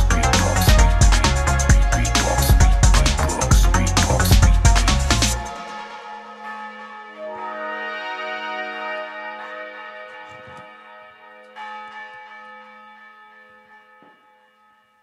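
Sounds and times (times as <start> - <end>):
steady low drone: 0.0 - 5.5
bell-like sustained chords: 5.4 - 11.8.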